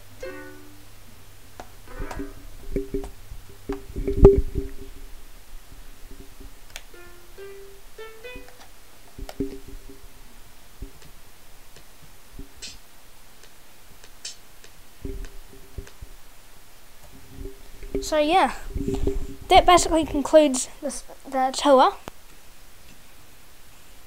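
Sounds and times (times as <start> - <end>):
plucked sequenced melody: 0.0 - 5.2, 6.0 - 11.1.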